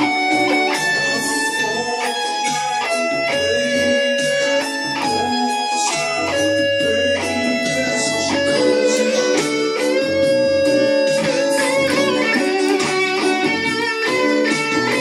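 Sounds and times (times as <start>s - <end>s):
electric guitar melody: 0.0s - 15.0s.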